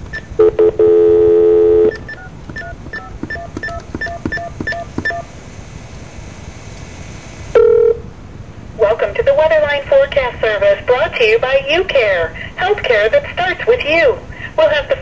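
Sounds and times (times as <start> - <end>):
touch-tone dialing: 0.1 - 5.3
steady telephone tone: 0.1 - 5.4, 7.4 - 8.1.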